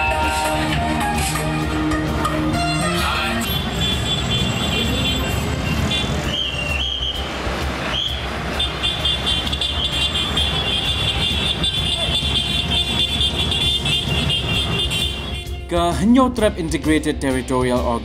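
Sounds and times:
car horns sounding: 0.0 - 15.8
engine and traffic rumble: 0.0 - 18.0.

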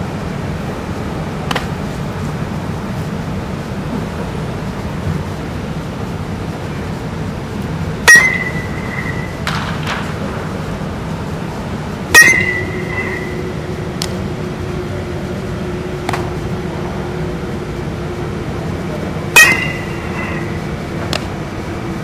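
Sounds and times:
steady hum: 0.0 - 22.0
bat cracking ball: 1.5 - 1.8, 8.1 - 10.3, 12.2 - 13.4, 16.0 - 16.4, 19.4 - 20.4.

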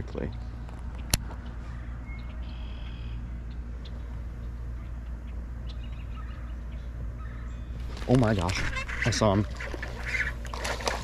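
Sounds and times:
steady low rumble: 0.0 - 11.0
faint birdlike chirps: 1.4 - 7.8.

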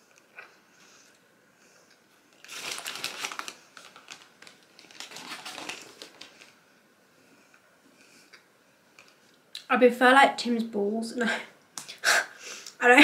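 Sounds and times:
paper bag crinkling: 2.3 - 6.6.

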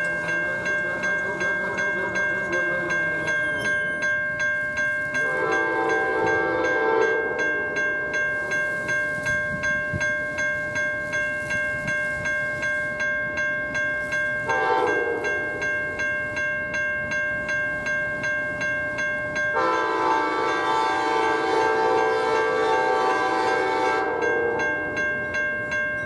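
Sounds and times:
crossing warning bell ringing: 0.0 - 26.0
train horn blasts: 5.2 - 7.4, 14.5 - 15.4, 19.6 - 24.6.

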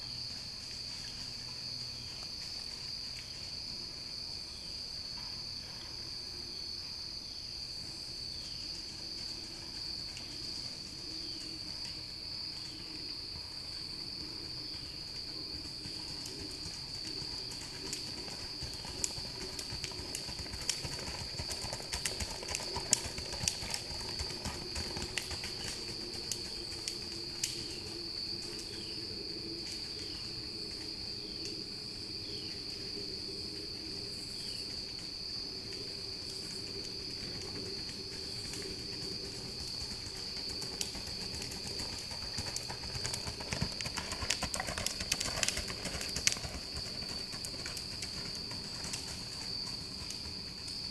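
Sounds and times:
horse hoofbeats on dirt: 14.8 - 27.1, 37.6 - 50.9.

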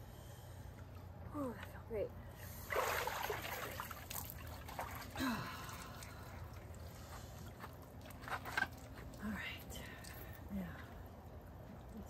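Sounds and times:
water splashing and dripping: 2.7 - 9.2.

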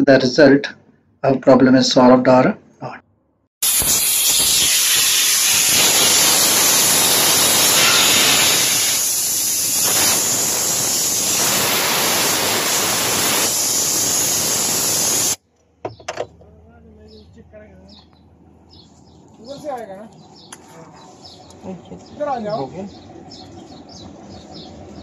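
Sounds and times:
compressed air hissing: 3.6 - 15.4.

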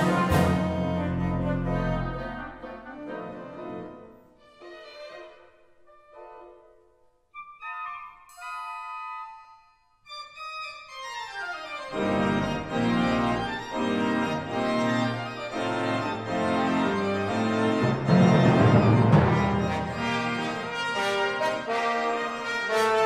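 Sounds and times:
pipe organ playing: 0.0 - 4.0, 7.5 - 23.0
orchestral chord: 16.2 - 22.2
percussion roll: 17.8 - 21.0.

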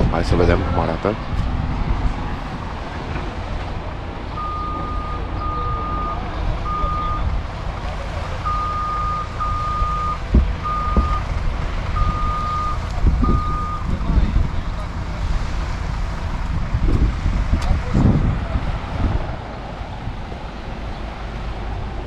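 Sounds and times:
low rumble: 0.0 - 20.9
reversing alarm beeping: 4.4 - 7.3, 8.4 - 11.2, 12.0 - 13.9.

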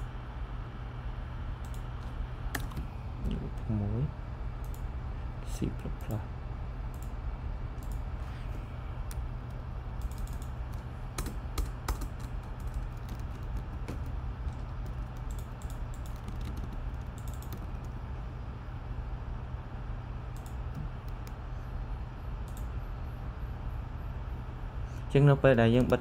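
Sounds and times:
steady low hum: 0.0 - 26.0
keyboard typing clicks: 1.6 - 2.9, 6.9 - 7.2, 7.8 - 8.0, 10.0 - 18.0, 20.3 - 21.4, 22.4 - 22.7, 25.7 - 26.0.

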